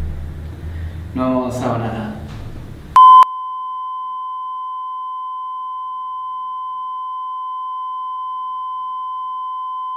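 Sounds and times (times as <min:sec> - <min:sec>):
steady test tone beep: 0:03.0 - 0:09.9.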